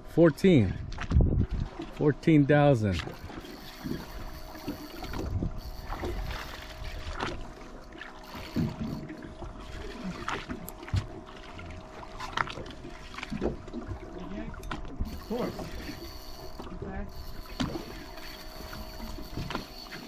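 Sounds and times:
water splashing along hull: 0.0 - 20.0
thin steady tone: 2.0 - 10.4, 14.1 - 20.0
machinery hum: 2.4 - 20.0.

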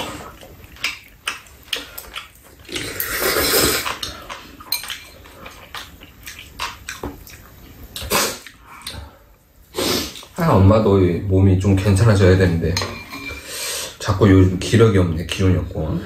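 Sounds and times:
noodles being slurped: 0.0 - 9.0.

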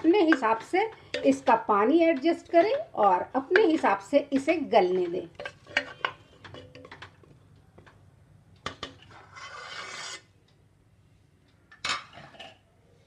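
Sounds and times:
metal spoon scraping a pot: 0.0 - 7.0, 8.8 - 10.3.

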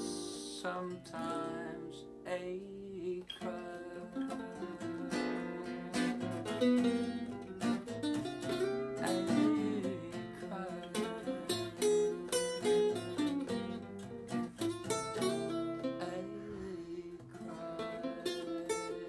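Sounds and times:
acoustic guitars playing: 0.0 - 19.0.

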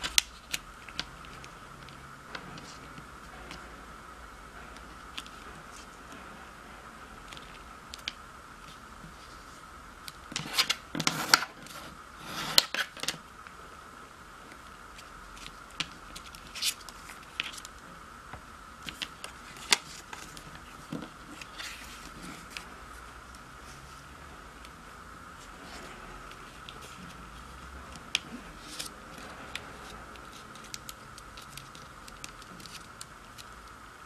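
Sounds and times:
faint high hum: 0.0 - 34.0
paper crinkling and rustling: 18.9 - 22.7, 25.5 - 33.6.

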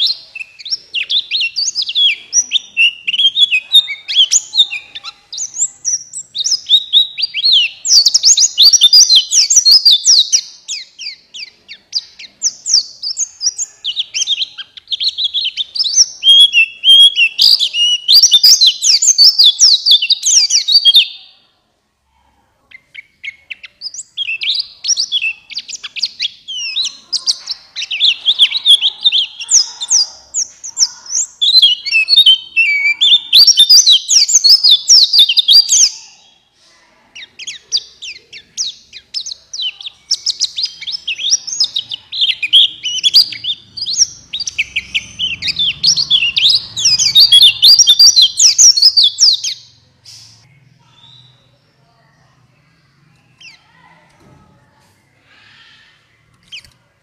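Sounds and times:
bird twittering song: 0.0 - 21.4, 22.7 - 36.5, 37.1 - 51.6, 52.4 - 53.8.

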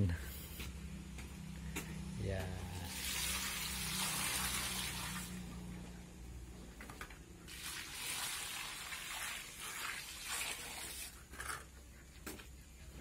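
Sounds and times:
water pouring and splashing: 2.7 - 5.9, 7.3 - 11.7.

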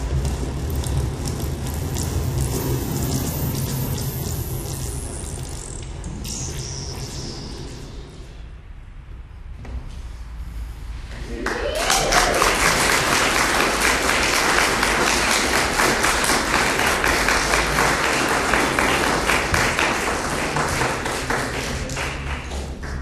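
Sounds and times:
steady low hum: 0.0 - 11.5
small audience applauding: 11.3 - 23.0.

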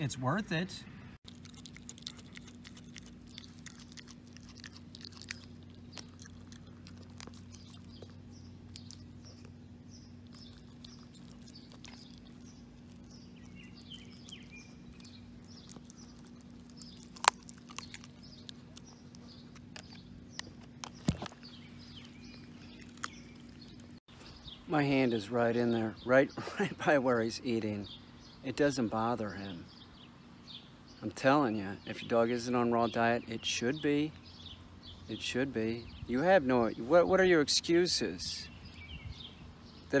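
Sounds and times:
bone cracking loudly: 1.2 - 9.6, 10.3 - 21.5, 22.1 - 24.0
dog crunching bone: 1.2 - 24.0.

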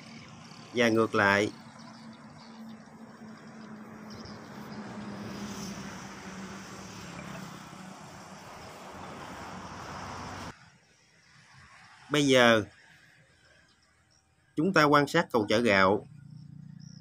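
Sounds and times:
low engine hum: 0.0 - 10.5
highway traffic passing: 0.0 - 17.0.

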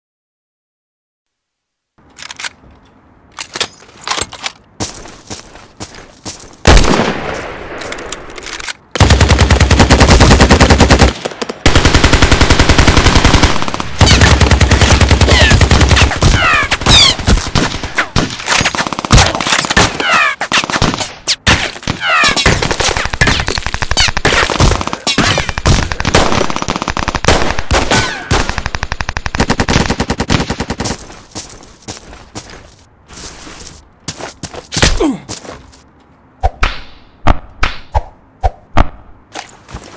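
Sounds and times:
single gunshots: 6.6 - 8.4
machine-gun fire: 9.0 - 20.0, 22.4 - 30.9.

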